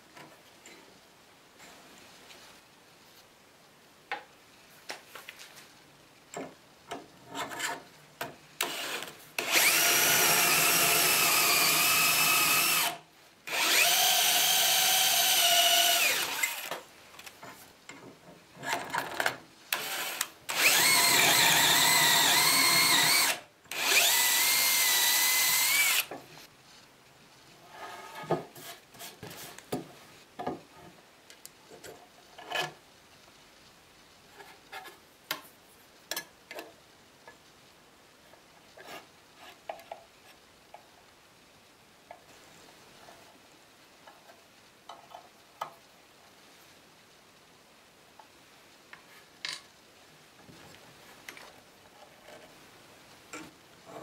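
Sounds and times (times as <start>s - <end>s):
drill boring into wood: 8.6s - 16.8s, 19.8s - 26.1s.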